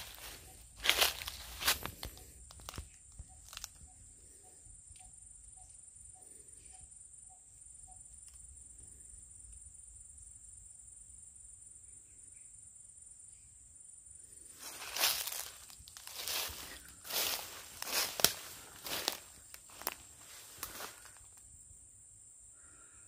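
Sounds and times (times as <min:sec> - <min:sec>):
footsteps in dry grass: 0:00.0 - 0:03.9, 0:14.6 - 0:21.4
insects droning: 0:00.0 - 0:23.0.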